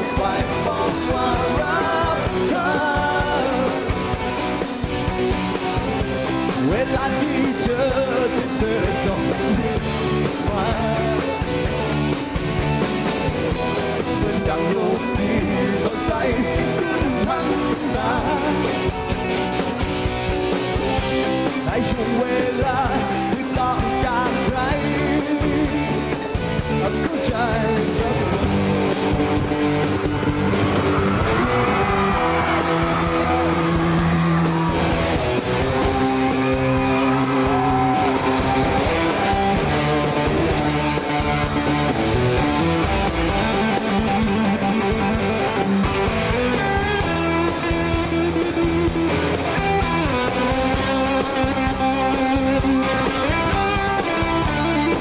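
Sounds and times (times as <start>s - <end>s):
live rock band: 0.0s - 55.0s
electric guitar bending notes: 27.8s - 55.0s.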